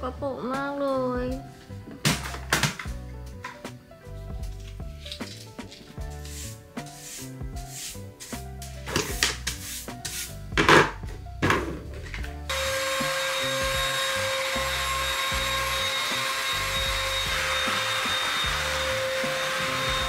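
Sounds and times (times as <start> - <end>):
background music with a beat: 0.6 - 20.0
stick vacuum cleaner whining: 12.5 - 20.0.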